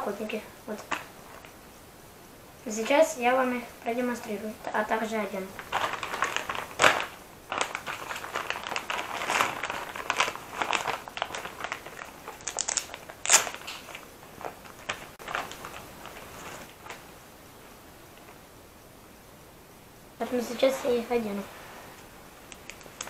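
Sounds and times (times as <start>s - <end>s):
plastic bag crinkling: 5.5s - 17.1s, 22.3s - 23.0s.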